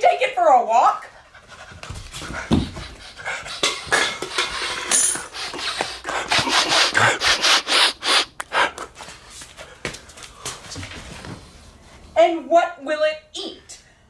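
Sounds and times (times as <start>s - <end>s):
man panting and huffing: 1.2s - 10.5s.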